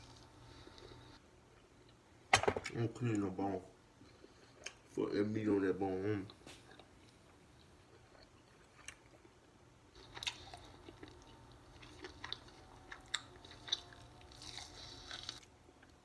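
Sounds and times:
person chewing: 6.3s - 9.4s, 10.0s - 16.0s.

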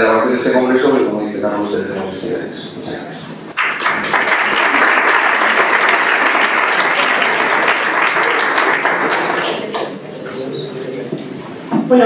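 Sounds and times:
audience applauding: 3.6s - 10.2s.

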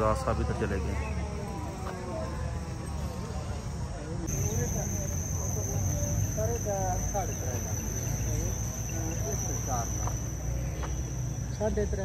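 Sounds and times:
insect chorus trilling: 4.3s - 12.0s.

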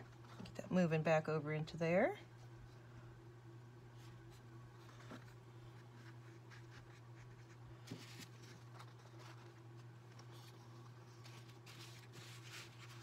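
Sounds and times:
paper rustling and scraping: 4.0s - 13.0s.

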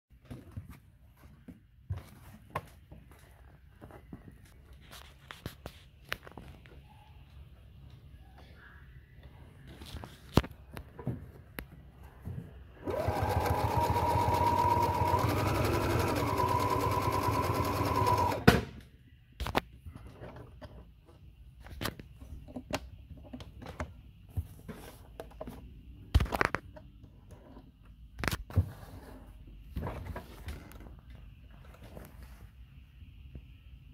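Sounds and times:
sewing machine running: 12.8s - 18.4s.

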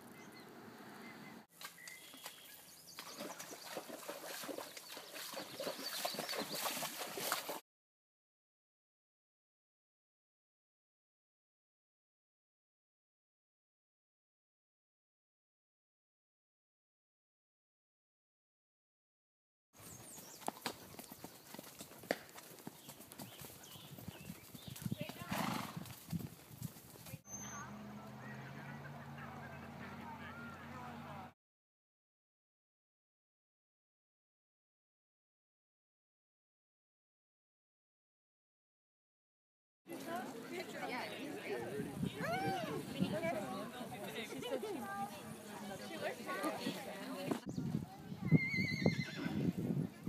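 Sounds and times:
hooves splashing in water: 1.5s - 7.6s
horse hooves clip-clopping on dirt: 1.6s - 7.6s, 19.8s - 27.2s.

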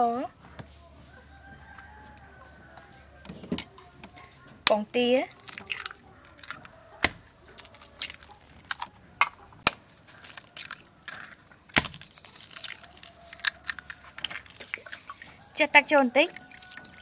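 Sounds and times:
eggshells cracking: 4.6s - 15.6s, 16.2s - 17.0s.

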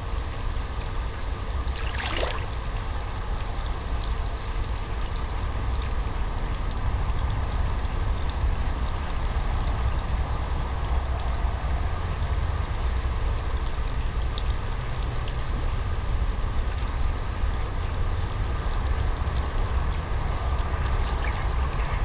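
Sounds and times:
steady low rumble: 0.0s - 22.0s
water sloshing and swishing: 0.5s - 5.8s, 18.8s - 22.0s.

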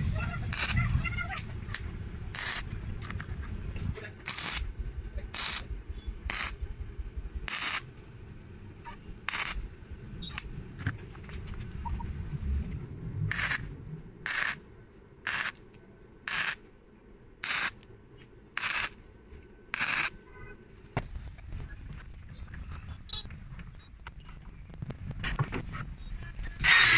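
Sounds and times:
arc welder bursts: 0.4s - 0.8s, 1.7s - 2.7s, 4.2s - 4.7s, 5.3s - 6.6s, 7.4s - 7.9s, 9.2s - 9.6s, 13.3s - 13.7s, 14.3s - 14.6s, 15.2s - 15.6s, 16.3s - 16.6s, 17.4s - 17.8s, 18.6s - 19.0s, 19.7s - 20.1s, 26.6s - 26.9s.

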